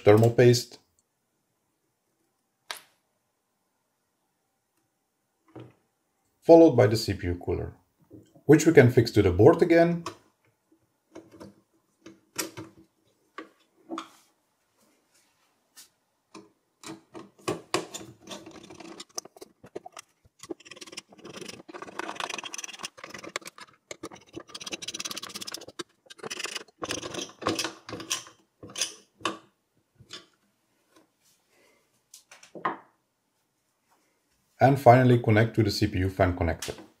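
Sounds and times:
screwdriver scraping screws: 17.2 - 29.0.

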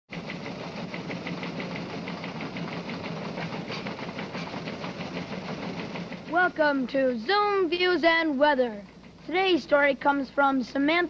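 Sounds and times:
rhythmic mechanical clicking: 0.1 - 11.0
low hum and hiss: 6.2 - 11.0.

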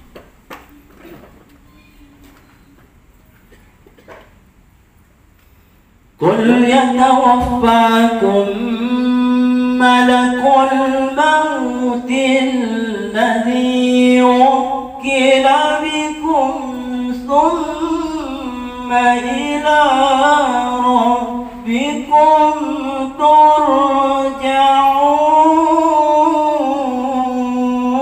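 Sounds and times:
man chanting into a microphone: 6.2 - 28.0.

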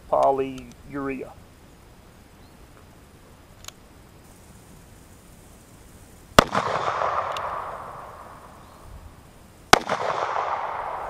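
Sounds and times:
revolver shots with echo: 6.4 - 8.6, 9.7 - 11.0.

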